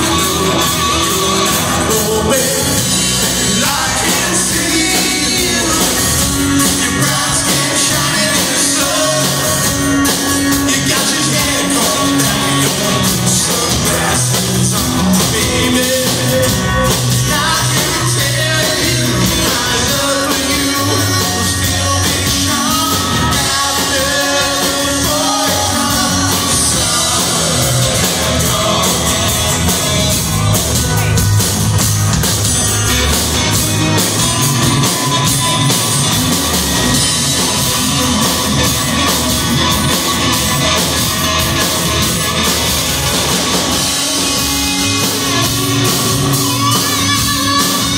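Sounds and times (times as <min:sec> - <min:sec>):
man singing: 0:00.0 - 0:30.2
acoustic guitars: 0:00.0 - 0:47.9.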